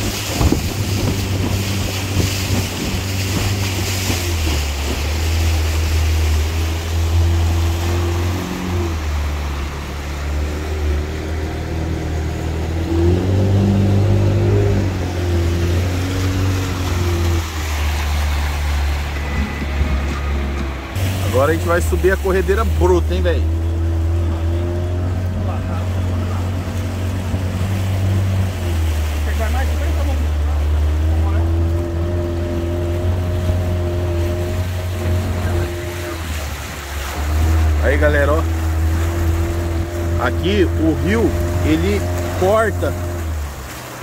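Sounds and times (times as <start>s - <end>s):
wind on microphone: 0.0s - 5.4s
motorboat engine running: 0.0s - 44.0s
water rushing: 0.0s - 44.0s.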